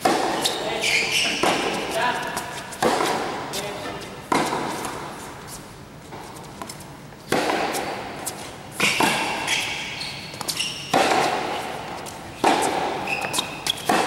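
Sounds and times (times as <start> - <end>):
tennis ball struck by racquets: 0.0 - 3.4, 4.3 - 5.2, 7.3 - 9.8, 10.4 - 14.0
ball bouncing on hard court: 0.0 - 3.7, 4.3 - 5.1, 6.1 - 14.0
shoe squeaks on court: 0.4 - 1.9, 8.8 - 10.9, 13.0 - 13.9.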